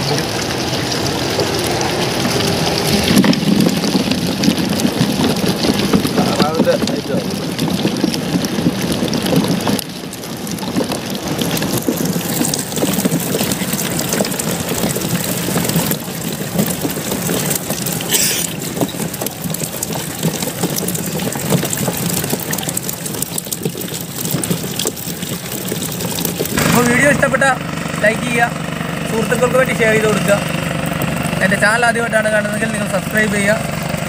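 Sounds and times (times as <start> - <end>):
fish flapping and splashing: 0.0 - 34.0
low hum: 25.1 - 31.8.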